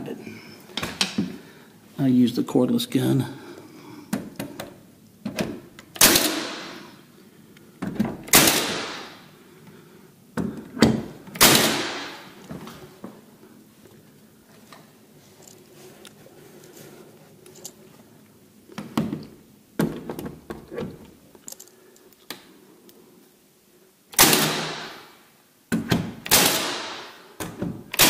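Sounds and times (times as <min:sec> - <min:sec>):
nail gun shot: 0:06.0 - 0:06.8, 0:08.3 - 0:09.2, 0:11.4 - 0:12.3, 0:24.2 - 0:25.1, 0:26.2 - 0:27.2
knocks and clatter of handling: 0:18.7 - 0:21.7.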